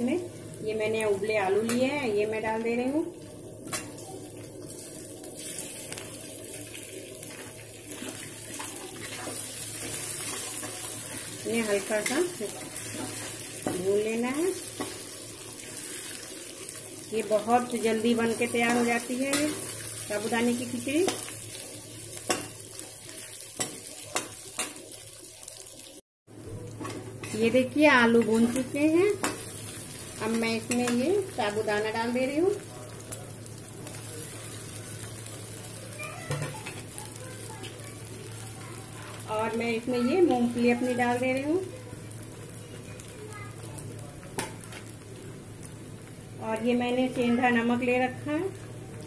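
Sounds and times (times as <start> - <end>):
ghee sizzling in a pan: 0.0 - 49.0.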